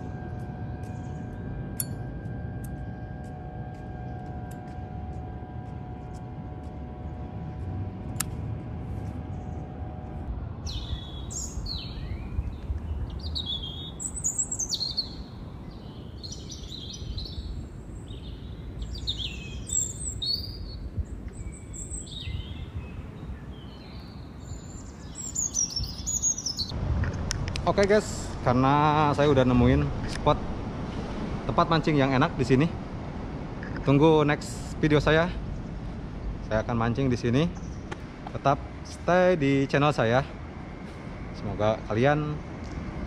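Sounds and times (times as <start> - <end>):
steady multi-pitch hum: 0.0 - 23.5
low rumbling noise: 0.0 - 43.0
small birds chirping: 10.6 - 26.7.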